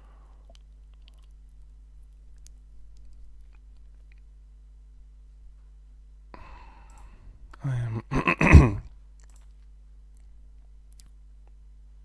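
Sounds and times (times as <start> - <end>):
low electrical hum: 0.0 - 12.0
man breathing in: 6.3 - 7.8.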